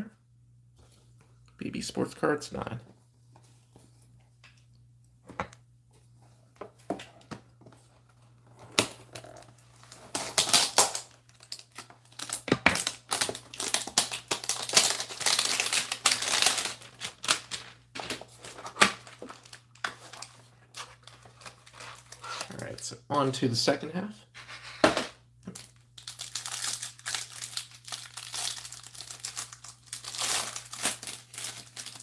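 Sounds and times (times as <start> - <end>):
packaging crinkling and tearing: 8.7 - 22.8, 25.5 - 32.0.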